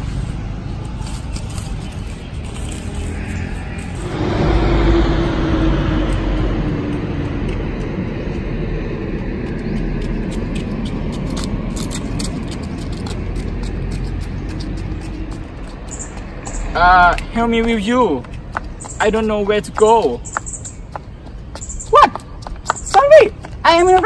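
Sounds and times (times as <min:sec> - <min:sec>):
vehicle engine passing: 0:00.0 - 0:18.8
low outdoor rumble: 0:00.0 - 0:19.9.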